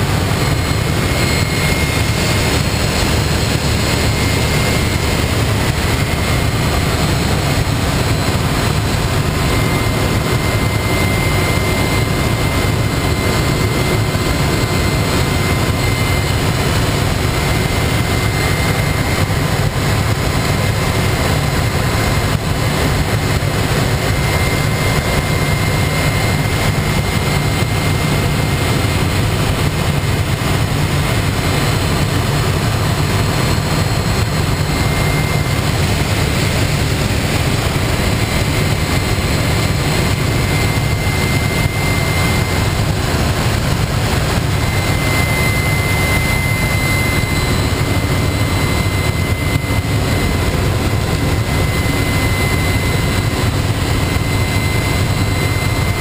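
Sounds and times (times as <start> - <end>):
faint high whine: 0.0 - 56.0
turboprop engine and propeller: 0.0 - 56.0.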